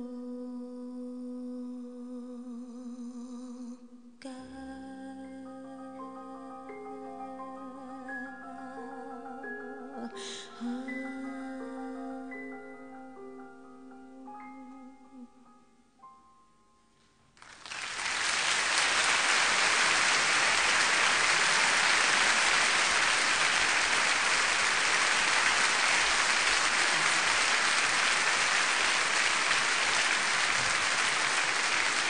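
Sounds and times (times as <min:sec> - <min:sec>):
music: 0:00.0 - 0:17.4
crowd applauding: 0:17.4 - 0:32.0.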